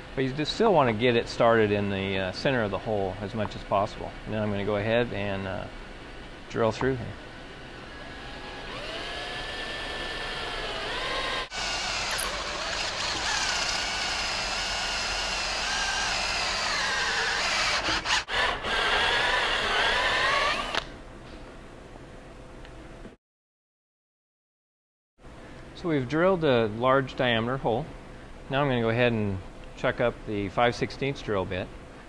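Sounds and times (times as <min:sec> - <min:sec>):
cordless drill boring plastic: 0:08.1 - 0:20.9.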